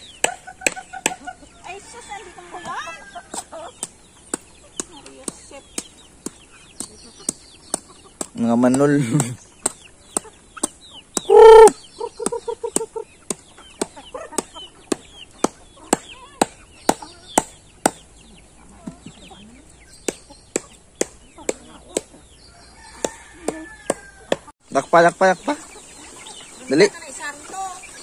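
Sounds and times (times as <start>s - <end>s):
hens clucking: 0.0s - 28.0s
hen squawking loudly: 11.3s - 11.8s.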